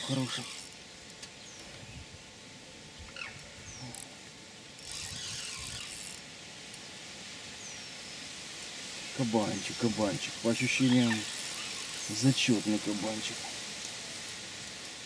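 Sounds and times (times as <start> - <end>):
fishing reel ratcheting: 0.0 - 0.8, 4.8 - 6.3, 10.5 - 14.0
reel drag buzzing: 0.0 - 1.7, 3.1 - 6.9, 9.2 - 15.0.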